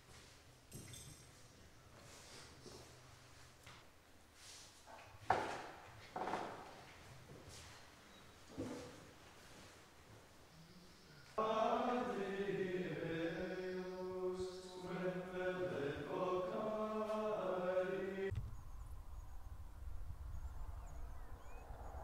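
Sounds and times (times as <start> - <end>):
monks chanting in unison: 11.3 - 18.3.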